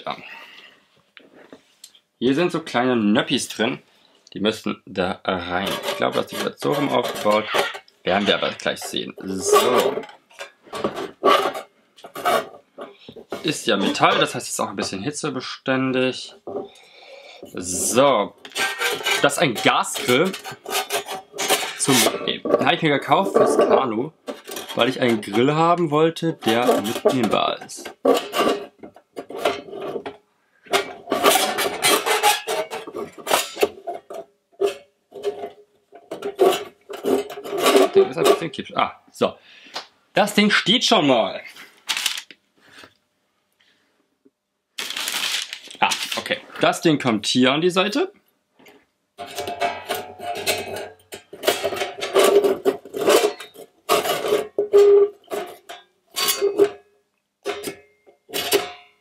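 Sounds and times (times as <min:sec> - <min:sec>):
metal panels clanking and scraping: 0:05.5 - 0:14.4, 0:17.9 - 0:25.5, 0:26.4 - 0:38.5, 0:49.2 - 0:56.8
metal plates clattering: 0:05.6 - 0:14.4, 0:17.9 - 0:25.5, 0:26.4 - 0:38.5, 0:49.2 - 0:56.8, 0:57.5 - 0:59.0.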